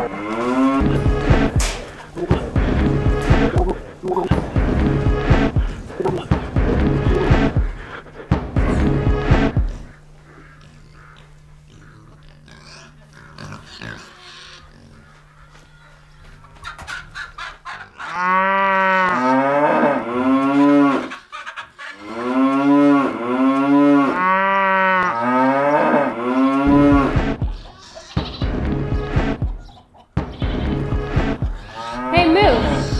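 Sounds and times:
cow mooing: 0:00.0 - 0:06.3, 0:18.0 - 0:21.2, 0:22.0 - 0:27.2, 0:31.5 - 0:32.9.

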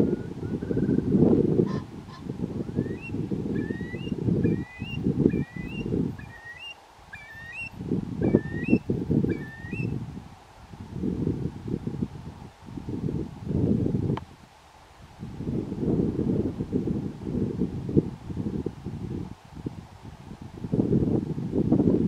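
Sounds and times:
wind rumble on microphone: 0:00.0 - 0:22.0
curlew whistled calls: 0:02.7 - 0:10.0.

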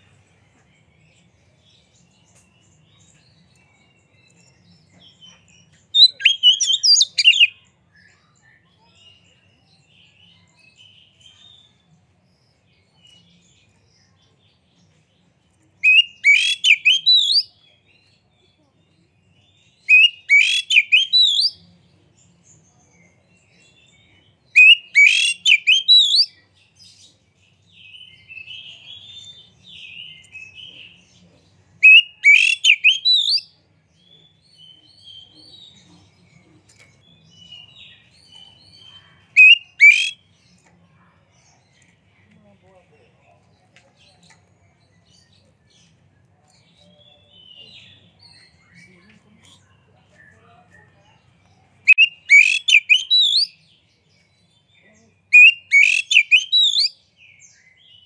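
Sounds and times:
bird whistled song: 0:04.2 - 0:08.4, 0:15.8 - 0:17.6, 0:19.7 - 0:21.6, 0:24.5 - 0:26.4, 0:31.8 - 0:33.6, 0:37.2 - 0:40.3, 0:51.8 - 0:53.7, 0:55.3 - 0:58.0
bird chattering: 0:06.0 - 0:07.5, 0:15.8 - 0:17.4, 0:19.9 - 0:21.6, 0:24.6 - 0:26.3, 0:31.8 - 0:33.4, 0:39.3 - 0:40.2, 0:51.9 - 0:53.5, 0:55.3 - 0:56.9.

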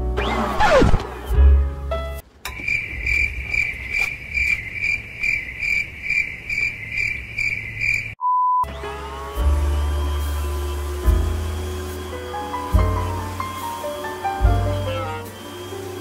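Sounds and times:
crickets chirping: 0:02.5 - 0:08.2.

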